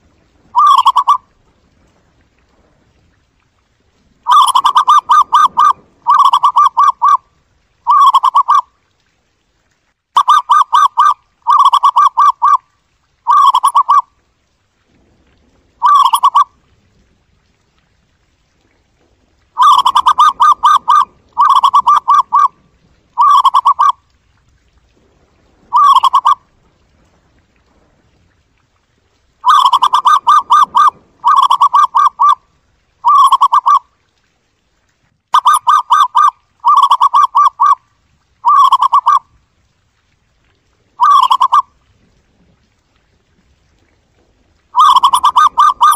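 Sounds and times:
dove cooing: 0.5s - 1.2s, 4.3s - 7.2s, 7.9s - 8.6s, 10.2s - 12.6s, 13.3s - 14.0s, 15.8s - 16.5s, 19.6s - 22.5s, 23.2s - 24.0s, 25.7s - 26.4s, 29.4s - 32.4s, 33.0s - 33.8s, 35.4s - 37.8s, 38.4s - 39.2s, 41.0s - 41.6s, 44.8s - 45.9s.

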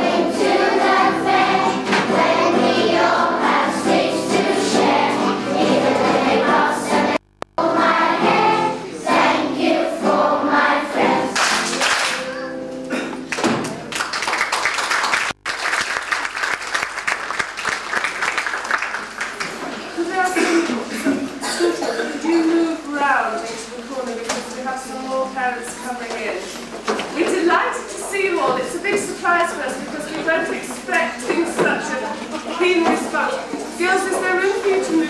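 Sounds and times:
children's choir singing: 0.0s - 11.8s
people clapping: 11.3s - 12.5s, 13.2s - 20.0s.

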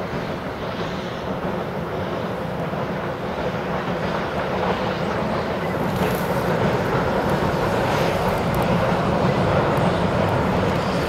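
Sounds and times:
steam locomotive rumbling: 0.0s - 11.0s.

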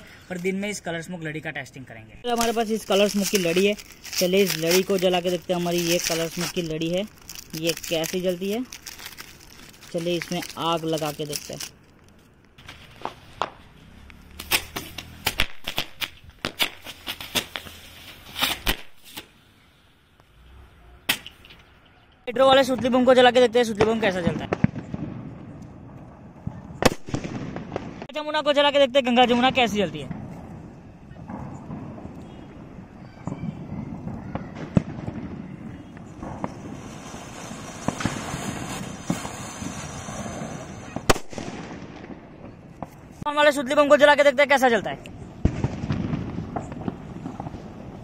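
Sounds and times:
sharp cracks and pops: 2.2s - 19.4s, 40.9s - 43.3s
firecrackers popping: 2.2s - 19.5s, 21.1s - 48.0s
fountain firework hissing: 36.1s - 41.1s.

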